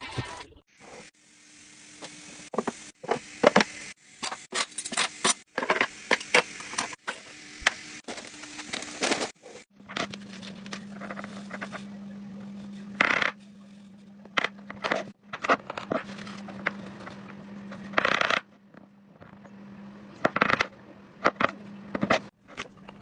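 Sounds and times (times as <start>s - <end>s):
steady low hum: 5.9s - 23.0s.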